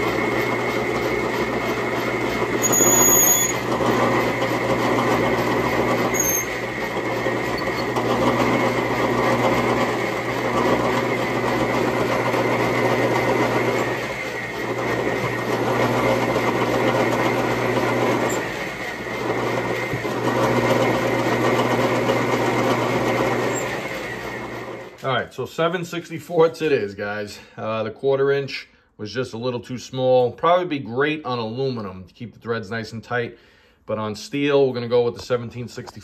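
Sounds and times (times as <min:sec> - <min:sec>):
drill cutting into steel: 0:00.0 - 0:25.0
lathe motor hum: 0:00.0 - 0:25.0.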